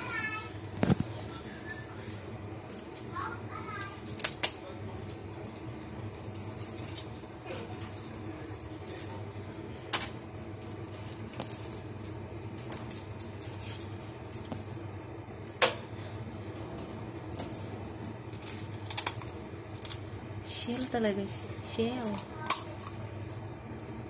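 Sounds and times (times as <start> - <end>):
steady low hum: 0.0 - 24.0
scissors cracking shell: 4.0 - 4.6, 18.4 - 20.1, 22.0 - 23.4.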